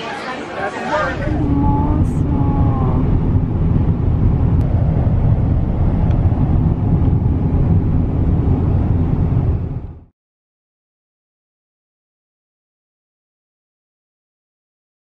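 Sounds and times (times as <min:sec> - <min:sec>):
car cabin road noise: 0:00.9 - 0:10.1.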